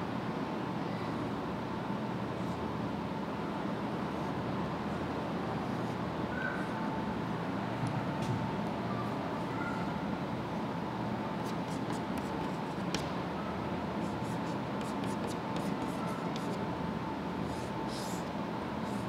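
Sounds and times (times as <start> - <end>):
room noise: 4.0 - 19.0
chalk tapping on chalkboard: 11.4 - 13.1, 14.0 - 16.6.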